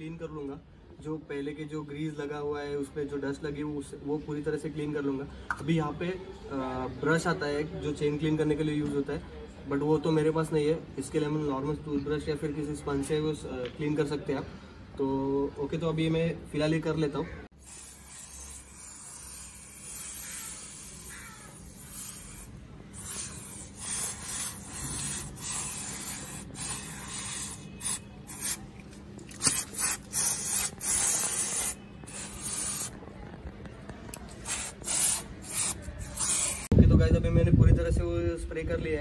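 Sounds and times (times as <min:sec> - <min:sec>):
spray can hissing: 0:17.6 - 0:28.7, 0:29.4 - 0:33.0, 0:34.2 - 0:36.7.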